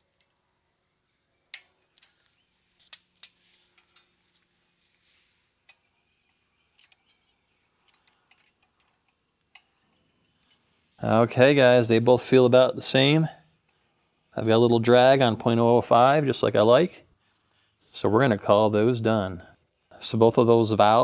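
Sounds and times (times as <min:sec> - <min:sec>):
metallic clicks of hand tools: 0:06.7 - 0:09.7.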